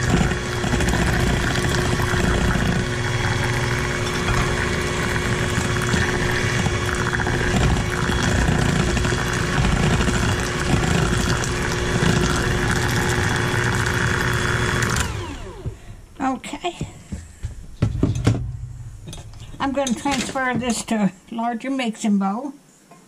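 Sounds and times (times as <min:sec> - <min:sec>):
electric stand mixer humming: 0:00.0 - 0:16.0.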